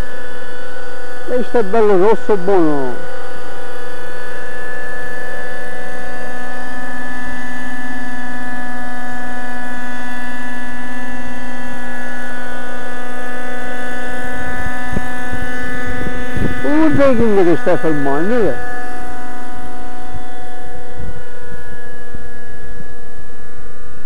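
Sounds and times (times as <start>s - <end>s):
model helicopter engine whine: 0.0s - 24.0s
wind buffeting on microphone: 14.5s - 18.4s.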